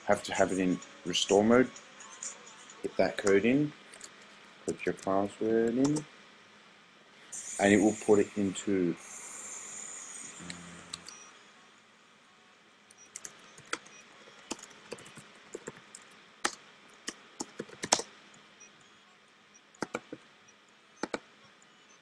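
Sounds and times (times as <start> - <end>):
keyboard keystroke clicks: 17.4 - 18.0, 19.8 - 20.2, 21.0 - 21.2.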